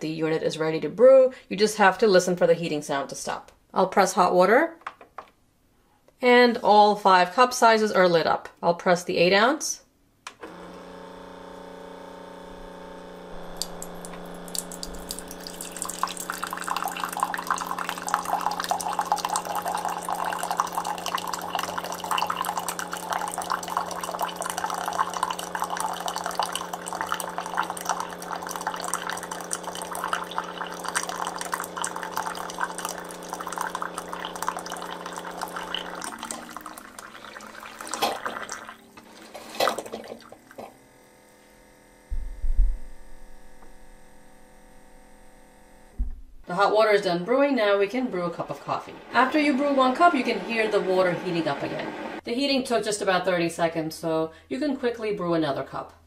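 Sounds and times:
pump humming: 10.4s - 52.2s
water sputtering: 13.4s - 40.7s, 47.4s - 52.2s
water splashing into a mug: 13.4s - 40.8s.

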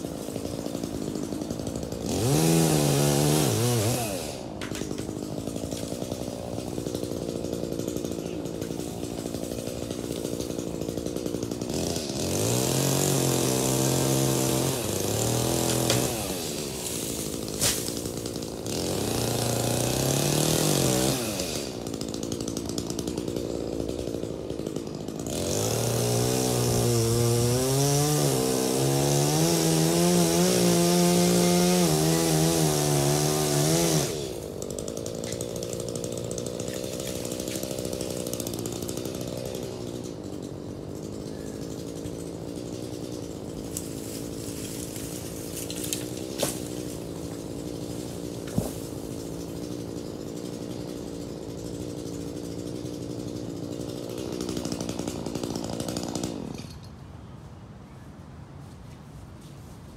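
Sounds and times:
chainsaw cutting wood: 0.0s - 57.0s
wood cracking: 0.1s - 30.1s, 30.8s - 51.0s.

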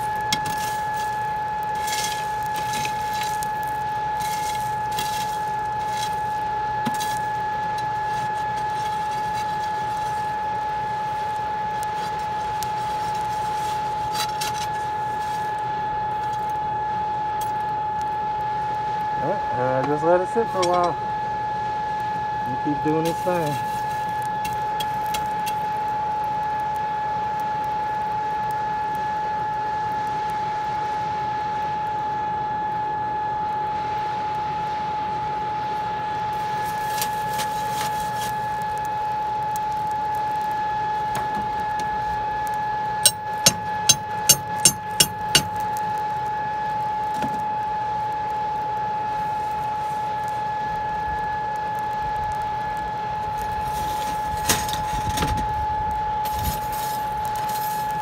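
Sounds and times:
fire rushing: 0.0s - 16.6s, 22.3s - 26.0s, 36.2s - 58.0s
air blower motor whine: 0.0s - 27.4s, 31.8s - 58.0s.

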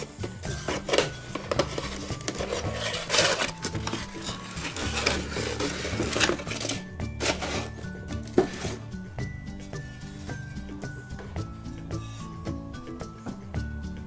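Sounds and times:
cardboard box rustling: 0.0s - 8.8s
packing paper crinkling: 0.6s - 7.8s.

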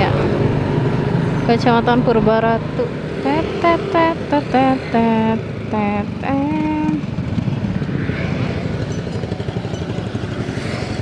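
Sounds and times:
motorcycle engine rumble: 0.0s - 11.0s
road noise: 0.0s - 11.0s.

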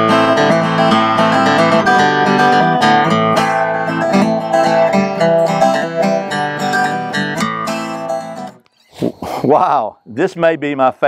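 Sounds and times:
acoustic guitar chords: 0.0s - 9.2s.

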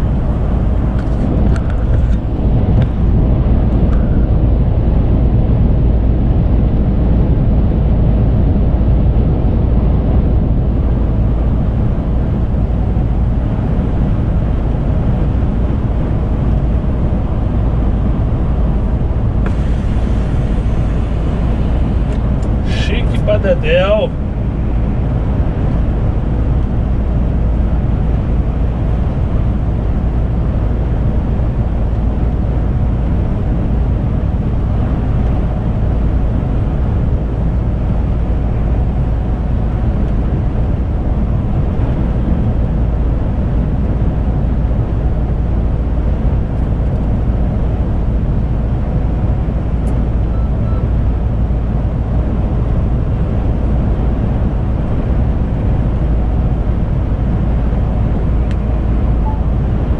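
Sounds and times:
truck engine drone: 0.0s - 59.9s
tyre and road rumble: 16.4s - 26.6s.

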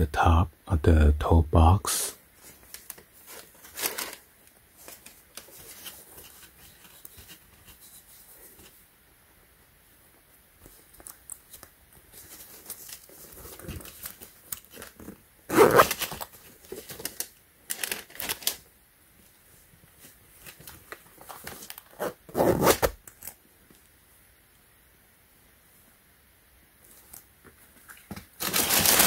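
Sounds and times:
rustling of tissue paper: 2.3s - 8.9s, 10.6s - 18.7s, 27.7s - 29.0s
boot zipper rasping: 15.5s - 15.9s, 22.0s - 22.9s.

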